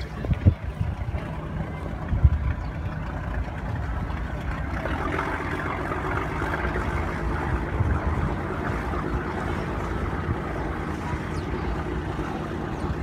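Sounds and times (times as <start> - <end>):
boat engine running: 0.0 - 13.0
wind rumble on microphone: 0.0 - 13.0.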